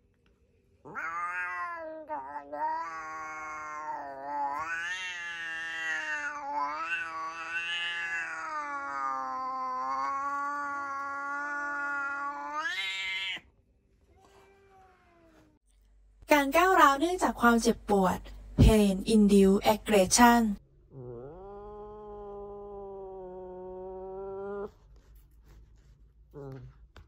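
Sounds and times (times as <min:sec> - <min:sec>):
cat yowling: 0:00.9 - 0:13.4.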